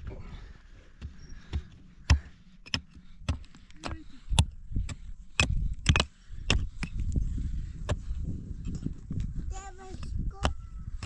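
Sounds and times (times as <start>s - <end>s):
digging tool striking stony earth: 1.0s - 7.1s.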